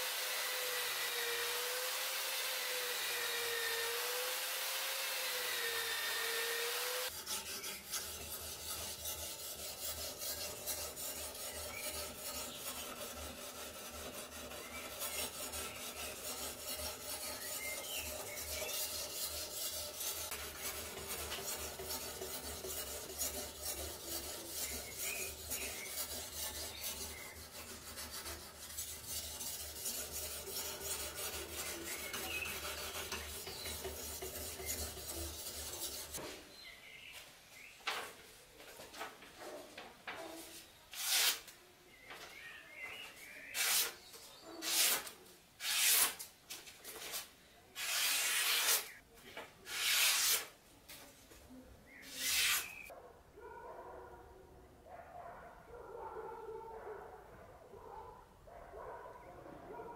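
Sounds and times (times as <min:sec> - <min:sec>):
sharpening stone rasping on blade: 0:07.1 - 0:36.2, 0:41.0 - 0:41.4, 0:43.6 - 0:44.0, 0:44.6 - 0:46.2, 0:47.8 - 0:49.0, 0:49.7 - 0:50.5, 0:52.0 - 0:52.9.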